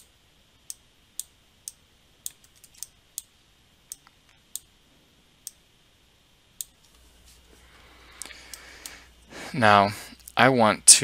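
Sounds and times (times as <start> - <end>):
computer mouse clicking: 0.7 - 3.3, 3.9 - 4.7.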